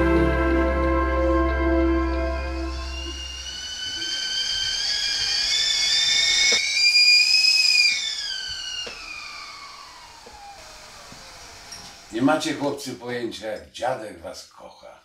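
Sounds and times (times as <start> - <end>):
kettle whistling: 1.3 - 13.0.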